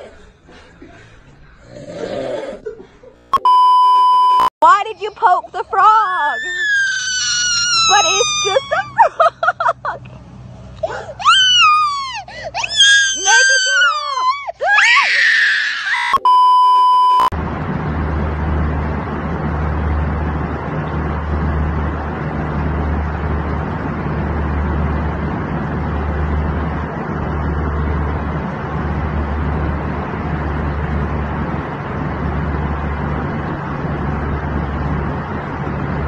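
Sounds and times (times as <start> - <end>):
loud beep tone: 3.4 - 4.5, 16.1 - 17.3
airliner cabin drone: 5.1 - 15.1, 16.2 - 36.0
child crying: 6.0 - 9.1, 10.9 - 16.2.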